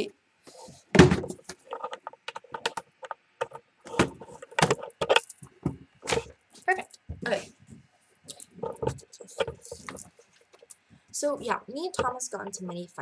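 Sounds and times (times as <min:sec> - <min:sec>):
laptop handling thump: 0:01.0 - 0:01.5.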